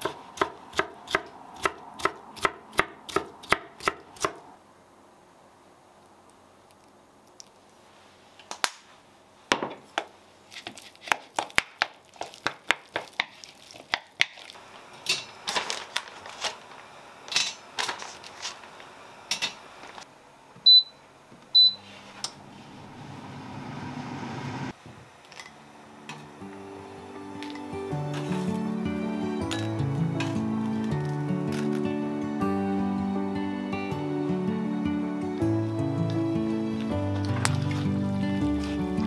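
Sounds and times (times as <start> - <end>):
air fryer fan whirring: 14.6 - 20.0, 21.6 - 31.8
short high beeps: 20.7 - 21.0, 21.6 - 21.8.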